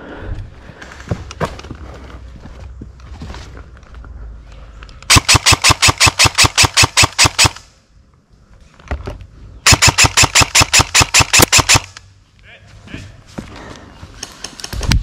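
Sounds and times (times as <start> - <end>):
airsoft rifle rapid shots: 5.1 - 7.7, 9.6 - 12.0.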